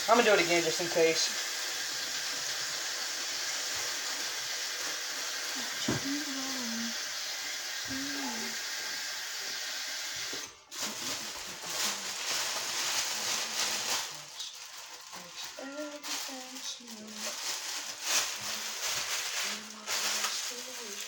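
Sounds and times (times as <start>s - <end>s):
tap water running: 0.0s - 14.3s
person humming: 5.6s - 7.0s, 7.9s - 8.6s
plastic bag handling: 10.7s - 21.0s.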